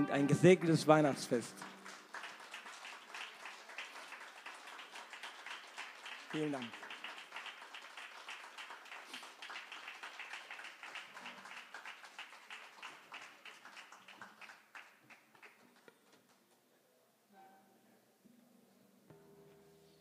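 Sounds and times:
audience applauding: 0:00.0 - 0:16.4.

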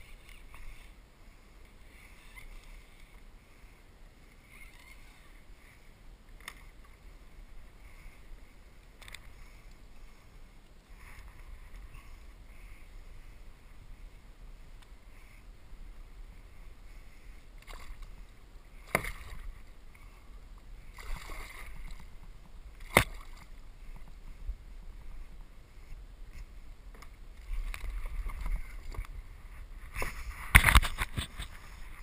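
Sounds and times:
low wind rumble on microphone: 0:00.0 - 0:32.0
water sloshing against kayak hull: 0:20.8 - 0:24.4.

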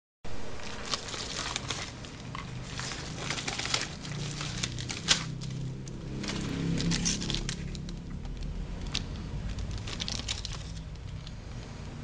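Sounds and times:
padded mailer crinkling: 0:00.4 - 0:11.4.

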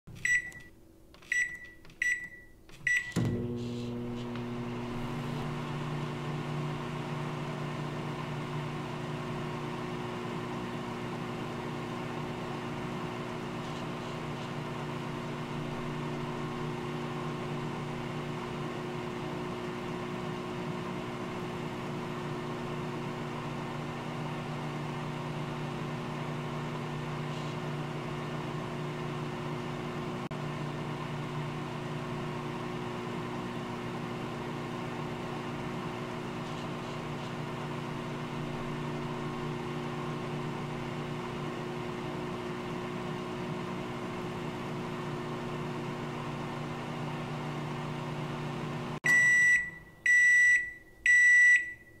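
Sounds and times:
microwave high-pitched beeps: 0:00.1 - 0:03.6, 0:49.0 - 0:52.0
microwave oven humming: 0:00.1 - 0:52.0.

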